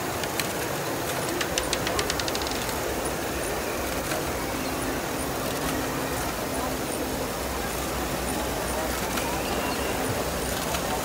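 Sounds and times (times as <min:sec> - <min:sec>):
rapid small clicks: 0:00.0 - 0:03.2
steady mechanical whirr: 0:00.0 - 0:11.0.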